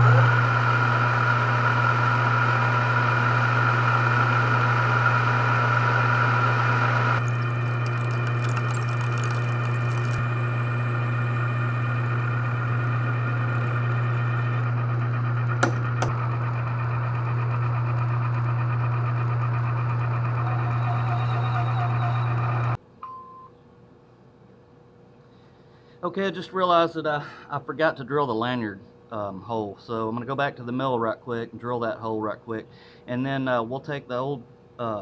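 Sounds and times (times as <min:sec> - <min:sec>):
metal lathe humming: 0:00.0 - 0:22.8.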